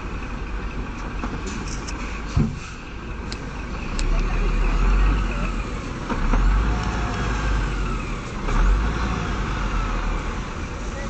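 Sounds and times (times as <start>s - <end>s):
truck diesel engine labouring: 0.0s - 11.0s.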